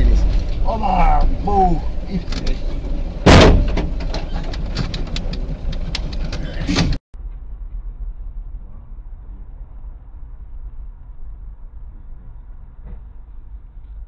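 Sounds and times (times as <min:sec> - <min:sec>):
sharp clicking and rattling: 0:00.0 - 0:07.0
car engine and tyres hum: 0:00.0 - 0:14.0
road rumble: 0:00.0 - 0:14.0
loud bang of wheel striking car: 0:03.2 - 0:04.2.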